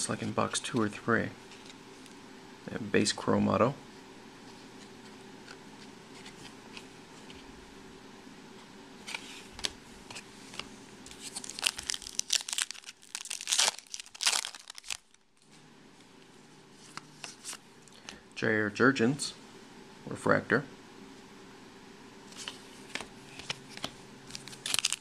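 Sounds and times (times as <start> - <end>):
foil wrapper tearing and crinkling: 11.1 - 15.3, 24.3 - 25.0.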